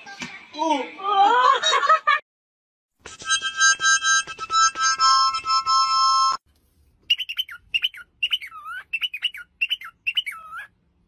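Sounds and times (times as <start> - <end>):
harmonica chord: 3.1 - 6.4
cockatiel whistling: 7.1 - 10.7.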